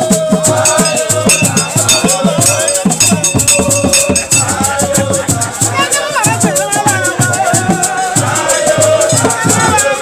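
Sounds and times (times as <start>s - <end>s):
drums beating quick rhythm: 0.0s - 10.0s
shaken rattles: 0.4s - 10.0s
held high note: 0.6s - 5.2s.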